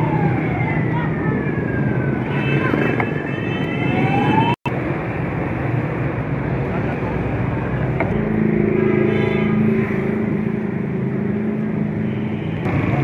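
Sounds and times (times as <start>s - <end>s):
busy street noise: 0.0s - 13.0s
vehicle engine running: 7.7s - 11.7s.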